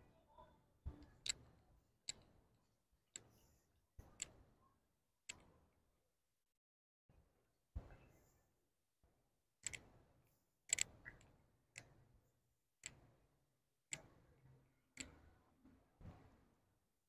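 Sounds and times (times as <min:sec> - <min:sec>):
sharp clicks: 0:10.7 - 0:11.9.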